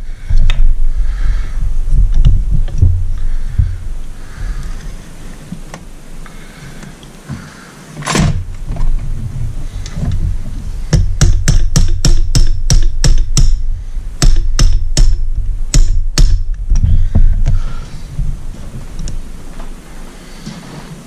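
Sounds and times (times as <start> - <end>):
hammer tapping on metal: 10.9 - 13.6, 14.2 - 16.5.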